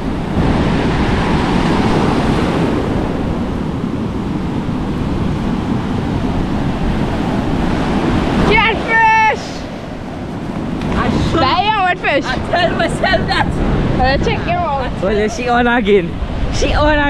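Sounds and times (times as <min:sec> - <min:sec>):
surf breaking on beach: 0:00.0 - 0:17.0.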